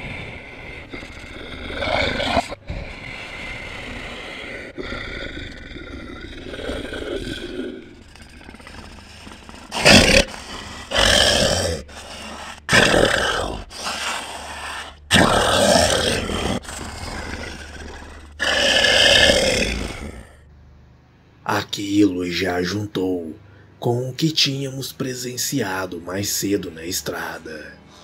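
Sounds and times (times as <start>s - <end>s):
beast growls and roars: 0.0s - 20.4s
low steady drone: 0.0s - 21.6s.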